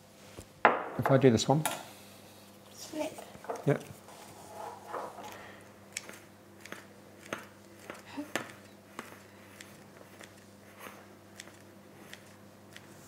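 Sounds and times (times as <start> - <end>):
scissors snipping dough: 5.9 - 13.0.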